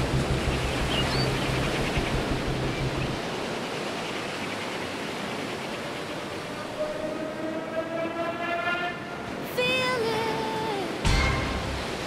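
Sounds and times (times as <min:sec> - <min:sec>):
low hum: 0:00.0 - 0:03.2
steady rushing noise: 0:00.0 - 0:12.0.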